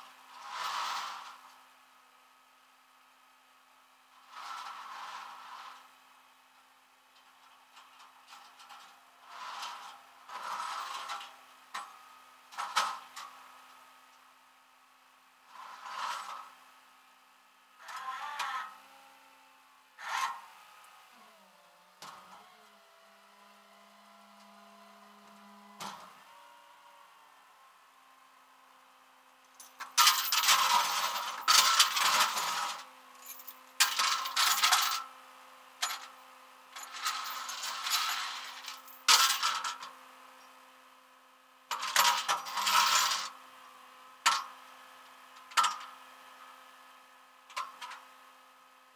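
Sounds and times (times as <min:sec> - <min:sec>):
metal chain rattling: 0:29.8 - 0:35.0.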